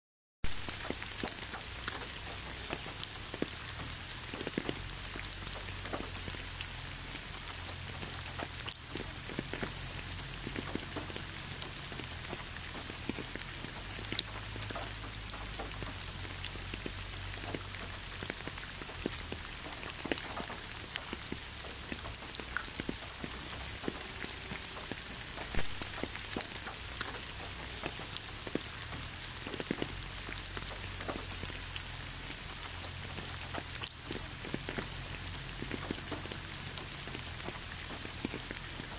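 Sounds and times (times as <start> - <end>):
rain falling: 0.4 - 38.9.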